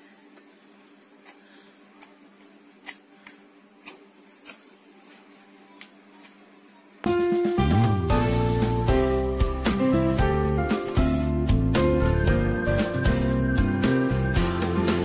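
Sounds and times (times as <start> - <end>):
music: 5.6 - 15.0.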